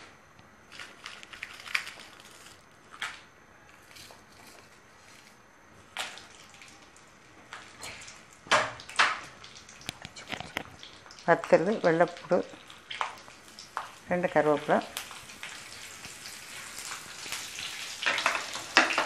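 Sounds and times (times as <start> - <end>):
light taps and soft crackles: 7.4 - 17.4.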